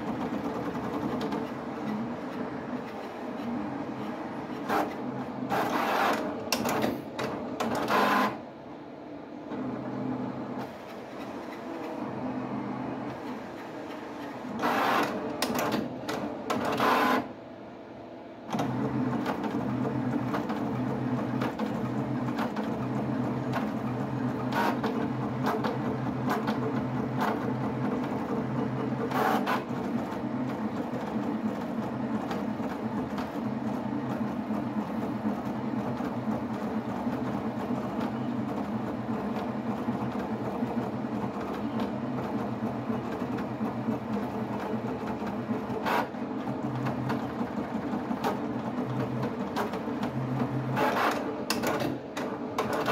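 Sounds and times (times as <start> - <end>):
plotter drive motors whirring: 0.0 - 52.9
pen plotter mechanical strokes: 1.2 - 6.8, 13.2 - 15.6, 29.0 - 30.1.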